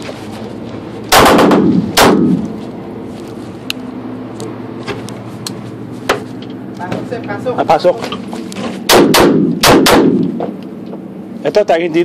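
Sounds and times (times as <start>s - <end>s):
pistol shots echoing indoors: 1.1s - 2.4s, 8.9s - 10.3s.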